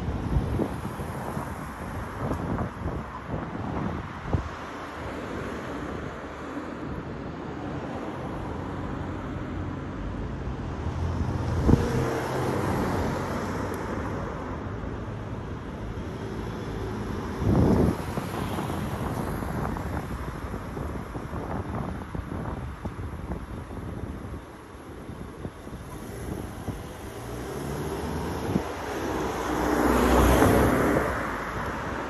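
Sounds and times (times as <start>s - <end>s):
wind buffeting microphone: 0.0s - 6.3s, 11.0s - 32.0s
cars driving past: 0.0s - 32.0s.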